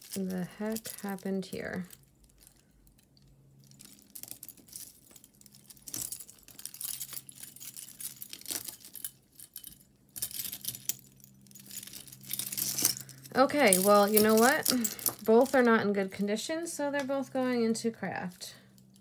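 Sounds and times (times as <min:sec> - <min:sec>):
chain necklaces jingling: 0:03.6 - 0:15.8.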